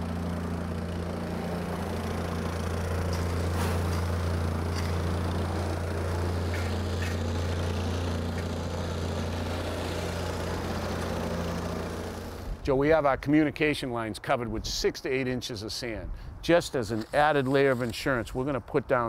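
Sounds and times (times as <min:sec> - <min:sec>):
plate compactor engine running: 0:00.0 - 0:12.6.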